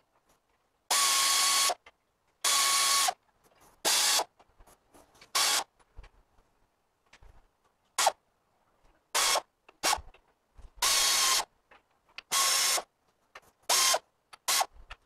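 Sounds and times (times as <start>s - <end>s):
pneumatic air ratchet bursts: 0.9s - 1.8s, 2.4s - 3.2s, 3.8s - 4.3s, 5.4s - 5.7s, 9.2s - 10.1s, 10.8s - 11.5s, 12.3s - 12.9s, 13.7s - 14.7s.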